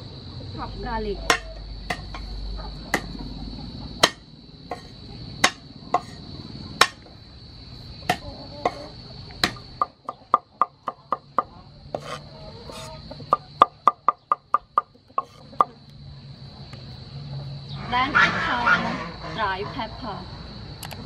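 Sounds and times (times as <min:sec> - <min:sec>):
cleaver chopping on wooden board: 0:01.3 - 0:02.2, 0:02.9 - 0:03.2, 0:04.0 - 0:06.2, 0:06.8 - 0:07.0, 0:09.4 - 0:15.7.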